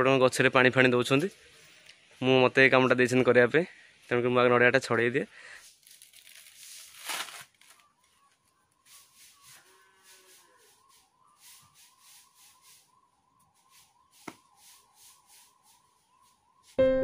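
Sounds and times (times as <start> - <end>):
mosquitoes whining: 9.3 - 12.0.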